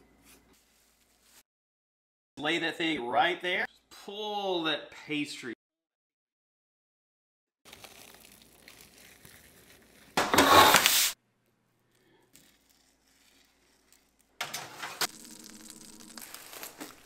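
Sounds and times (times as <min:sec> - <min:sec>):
cling film crinkling and tearing: 0:07.6 - 0:11.2, 0:12.3 - 0:17.0.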